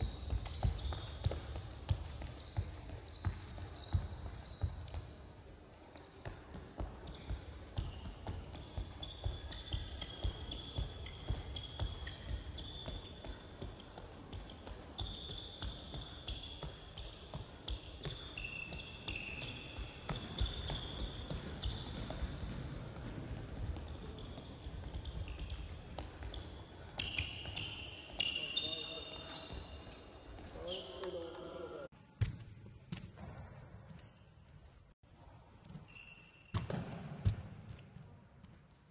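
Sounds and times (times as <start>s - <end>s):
sneakers squeaking: 0.0s - 5.3s, 6.2s - 31.9s.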